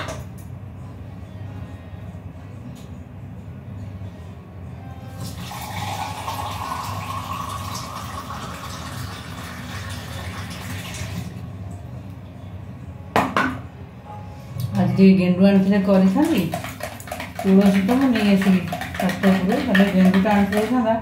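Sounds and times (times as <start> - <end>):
water running from a tap: 5.3 - 11.3.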